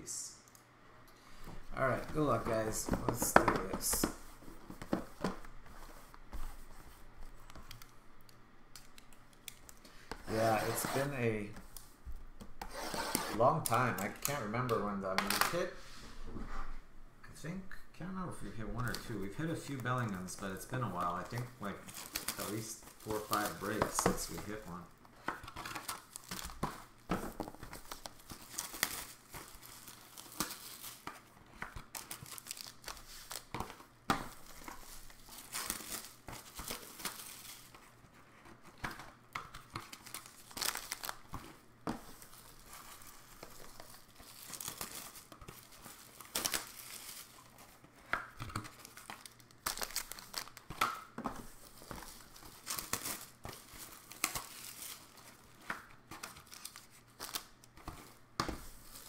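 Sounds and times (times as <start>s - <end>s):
cellophane tearing and crackling: 8.8s - 11.3s, 21.1s - 24.7s, 25.4s - 26.6s, 27.6s - 38.0s, 38.6s - 47.8s, 48.4s - 50.8s, 51.5s - 57.8s.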